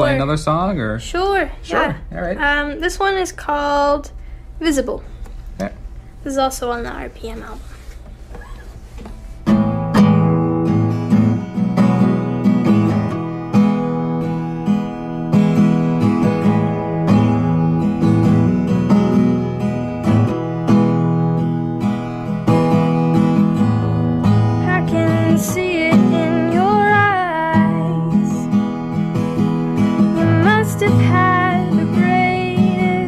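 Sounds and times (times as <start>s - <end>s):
strummed acoustic string instrument: 9.1s - 33.0s
woman singing: 24.6s - 28.6s, 30.0s - 33.0s.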